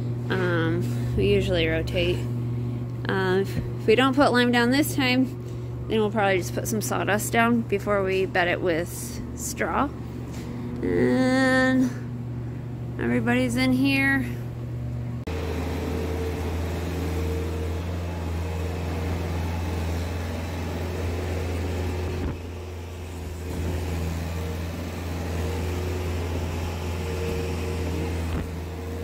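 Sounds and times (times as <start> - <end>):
skid steer loader engine running: 8.9 - 29.0.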